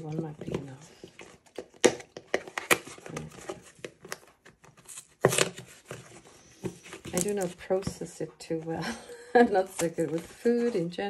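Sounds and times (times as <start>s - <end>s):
cardboard carton crinkling: 0.2s - 8.7s, 9.4s - 11.0s
carton tearing: 1.3s - 7.6s.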